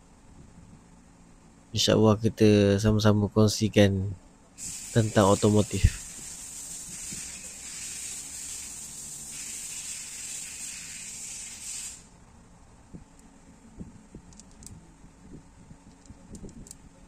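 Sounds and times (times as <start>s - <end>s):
steady high hiss: 4.6s - 12.2s.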